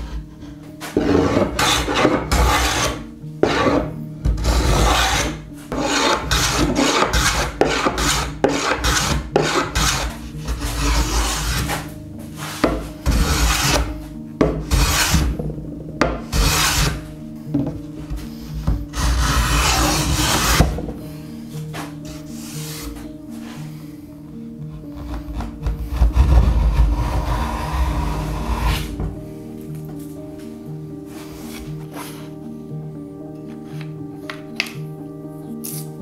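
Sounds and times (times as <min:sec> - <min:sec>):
hand plane rasping on wood: 0:00.0 - 0:15.4, 0:16.0 - 0:20.9, 0:22.0 - 0:23.6, 0:24.8 - 0:29.2.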